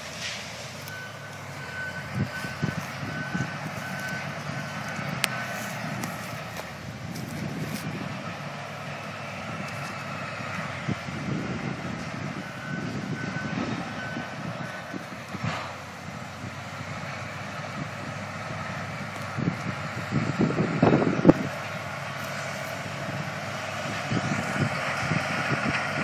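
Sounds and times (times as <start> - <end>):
bulldozer diesel engine rumbling: 0.0 - 26.0
tracks clanking: 0.0 - 26.0
short beeps: 0.9 - 5.7.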